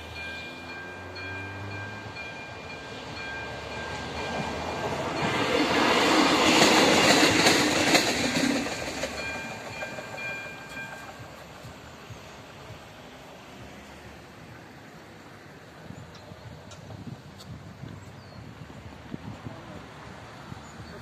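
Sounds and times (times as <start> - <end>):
crossing warning bell ringing: 0.0 - 12.5
diesel train passing: 0.0 - 21.0.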